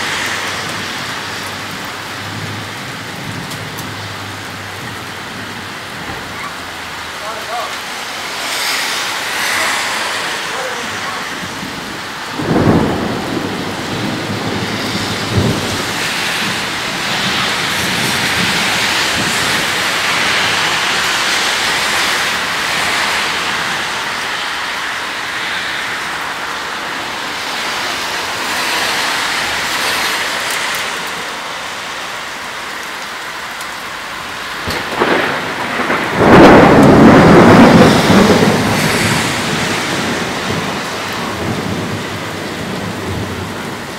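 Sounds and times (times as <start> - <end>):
steady rain: 0.0 - 43.9
thunder claps: 10.5 - 24.2, 34.6 - 43.9.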